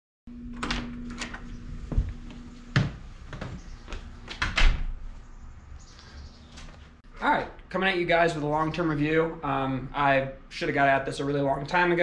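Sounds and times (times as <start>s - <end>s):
low steady hum: 0.3s - 12.0s
door thuds: 4.3s - 5.0s.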